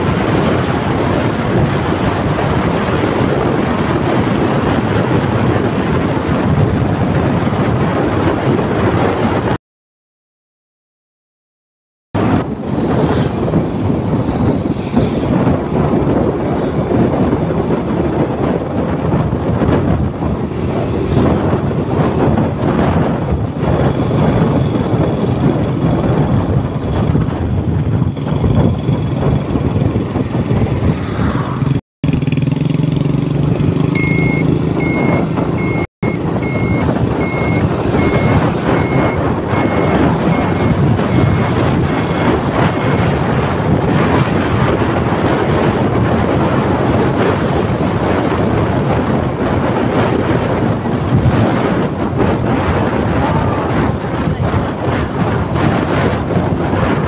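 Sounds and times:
wind rushing over microphone: 0.0 - 9.6, 12.2 - 57.0
motor scooter engine running: 32.0 - 39.2
high short beeps: 34.0 - 43.1.

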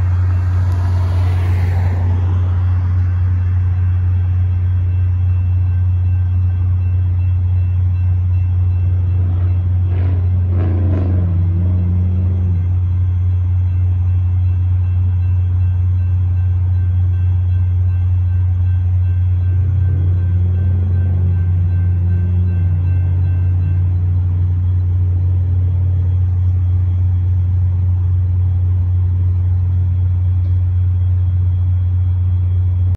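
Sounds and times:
low vehicle rumble: 0.0 - 32.9
engine note rising and falling: 9.3 - 12.7.

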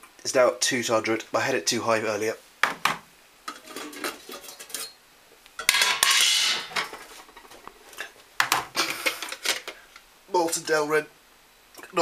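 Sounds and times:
metal cookware clattering: 3.5 - 5.0, 5.6 - 8.1
metal-on-metal scrape: 3.5 - 5.0.

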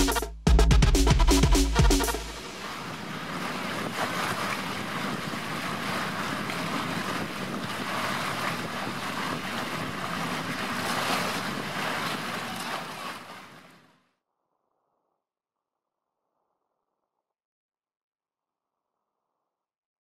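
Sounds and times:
water splashing along boat hull: 1.0 - 13.9
wind buffeting microphone: 2.3 - 13.8.

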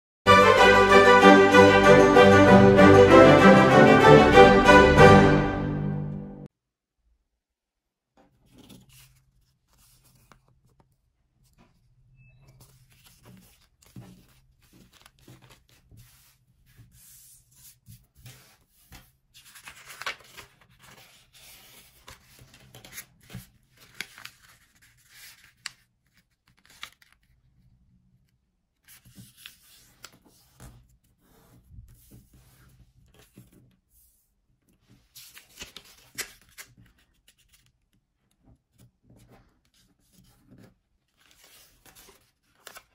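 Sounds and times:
paper rustling and crinkling: 8.4 - 11.9, 12.5 - 27.6, 28.8 - 33.7, 34.8 - 37.8, 38.8 - 42.9
paper folds crackling: 12.6 - 16.4, 18.2 - 27.5, 35.1 - 37.7, 41.1 - 42.9.

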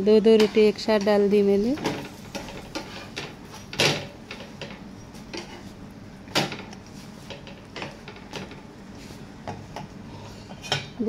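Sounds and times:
spatula clatters: 0.3 - 5.7
metal spatula scraping a griddle: 1.7 - 3.8.

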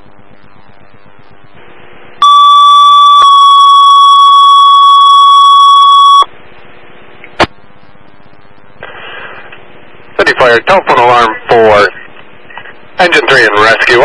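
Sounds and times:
radio hiss: 0.0 - 14.0
two-tone paging alert: 2.2 - 6.3
radio squelch click: 8.7 - 9.7.

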